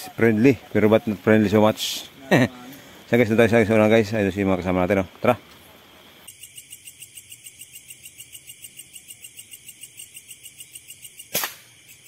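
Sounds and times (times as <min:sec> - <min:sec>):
insects chirping: 0:00.0 - 0:12.0
sharp gunshot: 0:11.3 - 0:11.7.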